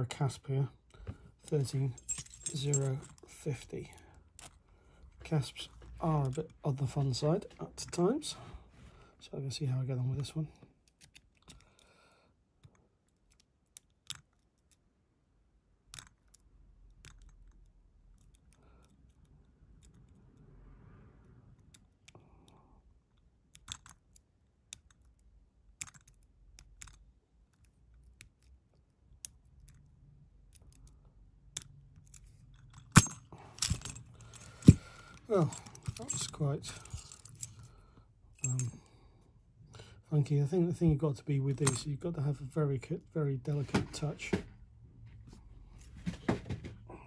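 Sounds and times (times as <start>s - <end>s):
lock pick clicking on pins: 10.8s - 11.9s, 12.6s - 14.9s, 15.8s - 20.2s, 21.5s - 37.7s.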